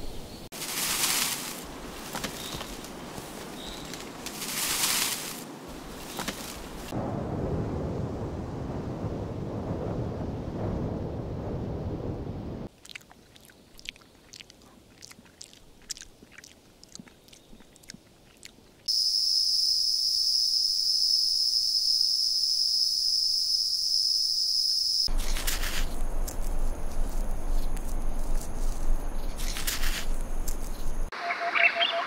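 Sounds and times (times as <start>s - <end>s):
rustling hiss: 0.0s - 7.0s, 25.1s - 31.1s
animal chewing meat: 12.7s - 18.9s, 25.1s - 30.9s.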